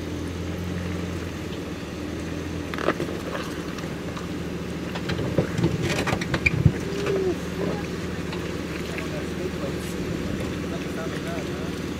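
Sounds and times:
car engine running at low revs: 0:00.0 - 0:11.9
knocks and clatter: 0:04.9 - 0:07.1.

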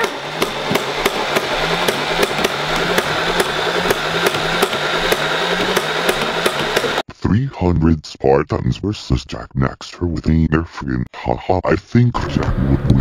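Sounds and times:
motor whirring: 0:00.0 - 0:07.0
toy blaster firing rapid shots: 0:00.0 - 0:07.0.

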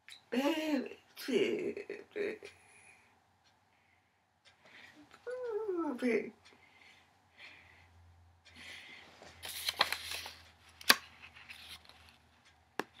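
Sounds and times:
rustling handling noise: 0:09.0 - 0:12.5.

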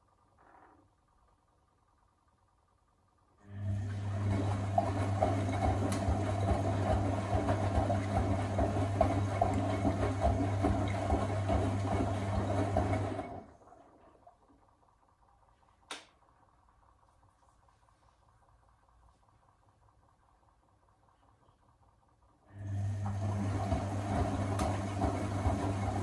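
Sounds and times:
washing machine motor hum: 0:00.0 - 0:26.0
water and laundry swishing: 0:04.1 - 0:14.3, 0:23.2 - 0:26.0.

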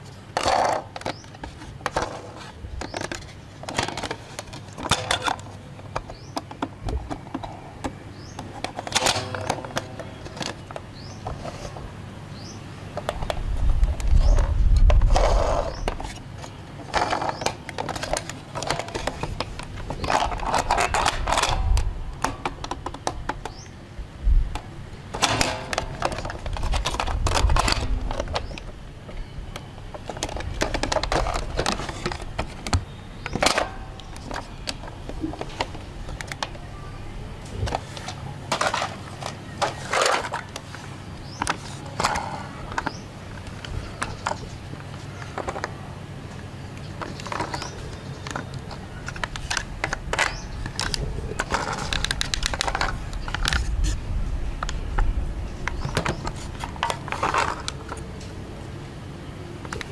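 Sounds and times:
plastic toy clicks and clacks: 0:47.0 - 0:53.8.

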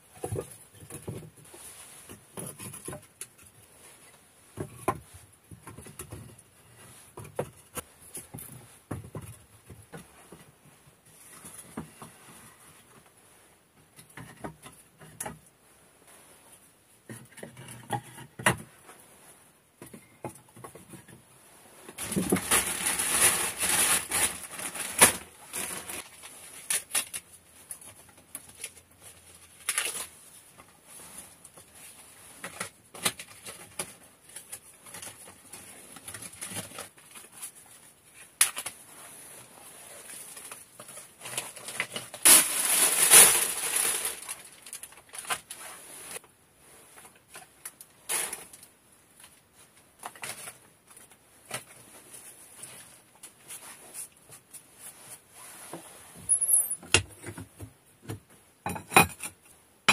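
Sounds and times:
wooden clatters and knocks: 0:00.1 - 0:01.4, 0:07.1 - 0:10.5.

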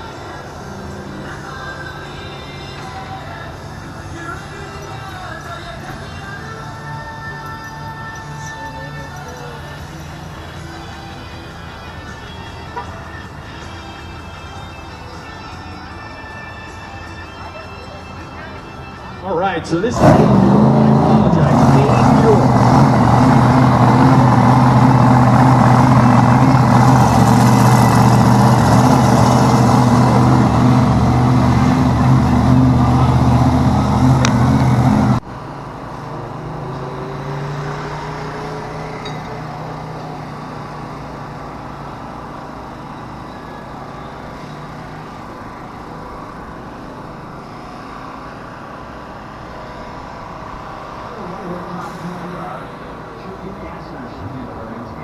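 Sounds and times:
faint distant engine: 0:16.1 - 0:55.0
loud motor drone: 0:19.9 - 0:35.2.

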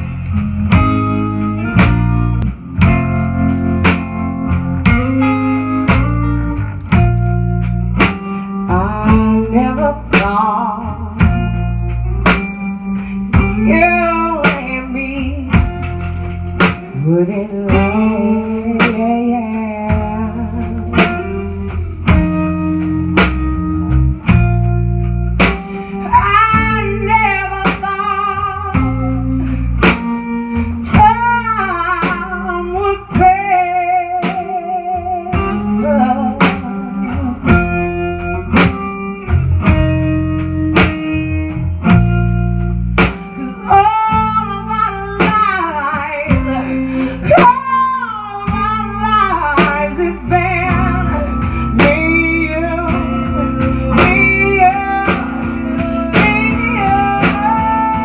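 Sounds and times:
drum kit beat: 0:00.0 - 0:58.0
electric bass: 0:00.0 - 0:58.0
electric guitar: 0:00.0 - 0:58.0
woman singing: 0:08.5 - 0:11.7, 0:13.3 - 0:22.4, 0:25.4 - 0:39.4, 0:43.2 - 0:58.0.

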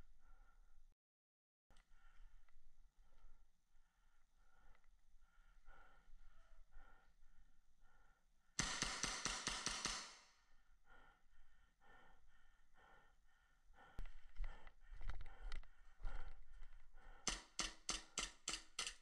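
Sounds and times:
heavy rhythmic breathing: 0:00.0 - 0:01.0, 0:01.7 - 0:19.0
rapid airsoft gunfire: 0:08.6 - 0:10.3
sharp airsoft shots: 0:08.6 - 0:10.3.

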